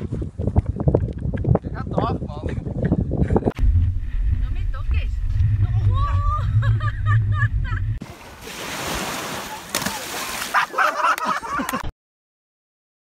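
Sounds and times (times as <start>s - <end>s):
wind rumbling on microphone: 0.0s - 8.0s
surf hissing at shoreline: 8.0s - 10.7s.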